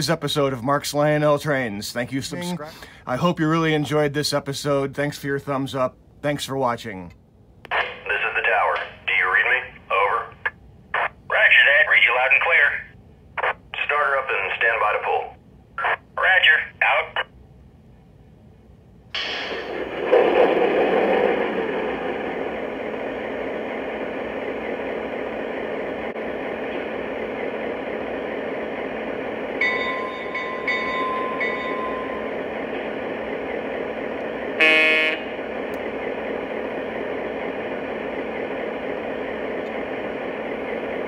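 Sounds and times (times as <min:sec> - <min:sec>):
model locomotive diesel engine sound: 0:00.0 - 0:41.0
locomotive horn blast: 0:34.6 - 0:35.4.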